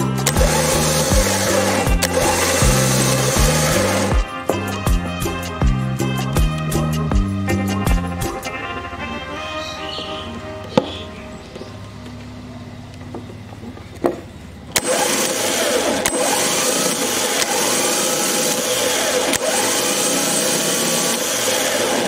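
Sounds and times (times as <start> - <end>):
starter motor click: 0.0 - 4.8, 11.5 - 22.0
starter motor whirring: 0.0 - 8.4, 9.6 - 22.0
high gear whine: 0.0 - 22.0.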